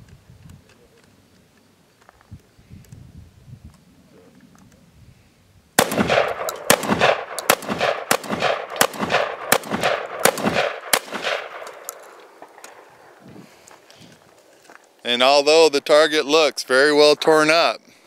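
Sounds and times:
shotgun shots echoing: 5.8s - 12.9s.

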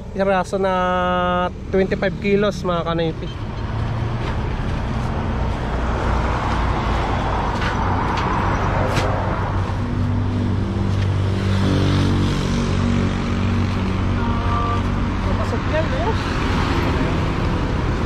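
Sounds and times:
vehicle passing close by: 14.8s - 18.0s.

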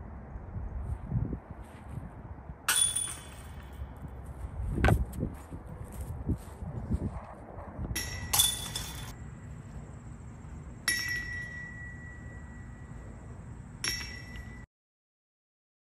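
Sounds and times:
low rumble: 0.0s - 10.8s
metal chains clinking: 8.0s - 9.2s.

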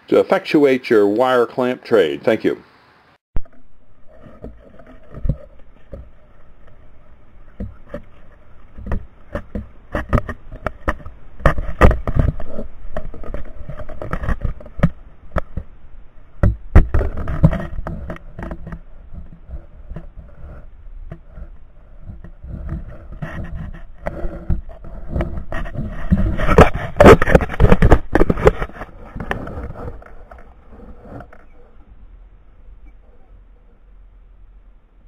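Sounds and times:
faint steady hum: 0.0s - 35.0s
knocks and scraping on camera mount: 3.4s - 6.9s, 7.5s - 15.7s, 16.4s - 31.6s.

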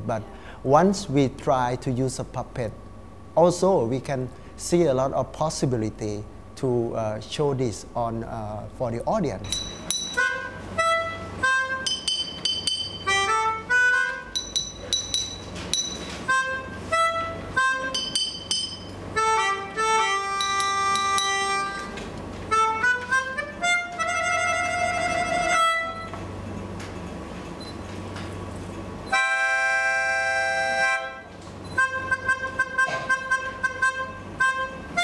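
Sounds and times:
faint steady hum: 0.0s - 35.0s
reedy wind instrument playing: 10.2s - 11.9s, 16.3s - 18.0s, 19.1s - 26.2s, 29.1s - 35.0s.

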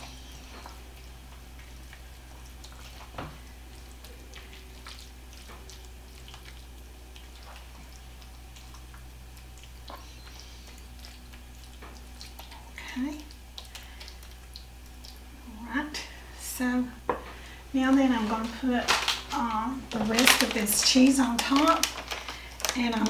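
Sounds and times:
spoon squishing and scraping mixture: 0.0s - 15.3s
low hum: 0.0s - 23.0s.

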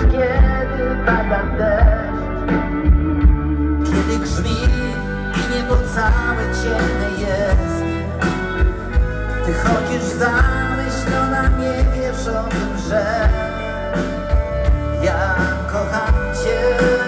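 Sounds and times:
lead melody line: 0.0s - 17.0s
live rock band: 0.0s - 17.0s.

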